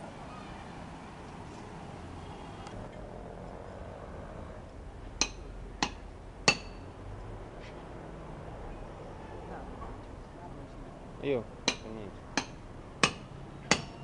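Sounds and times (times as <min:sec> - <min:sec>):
metal tapping on metal pipe: 0:05.2 - 0:06.8, 0:11.6 - 0:14.0.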